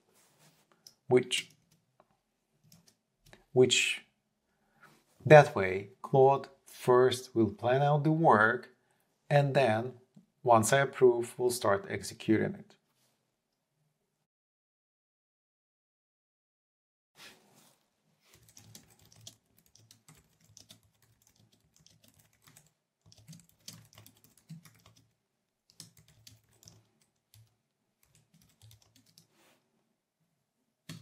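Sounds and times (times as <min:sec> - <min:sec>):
computer keyboard typing: 0:18.3 - 0:29.3.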